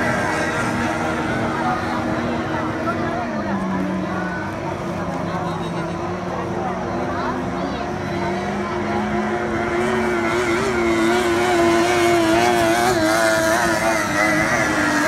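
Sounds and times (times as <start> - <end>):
outboard motors whining: 0.0 - 15.0.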